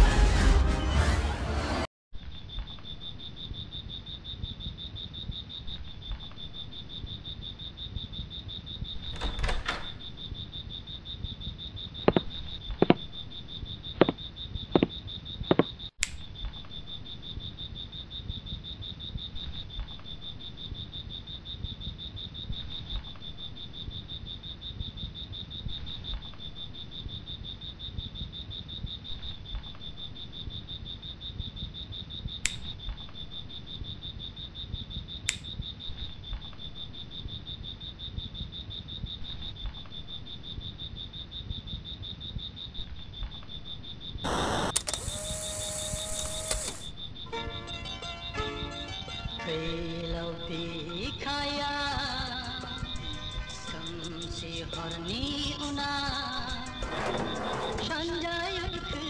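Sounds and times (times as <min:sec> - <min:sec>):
insects chirping: 0:02.2 - 0:59.0
sharp clicks: 0:32.4 - 0:32.7, 0:35.3 - 0:35.6, 0:44.2 - 0:47.0.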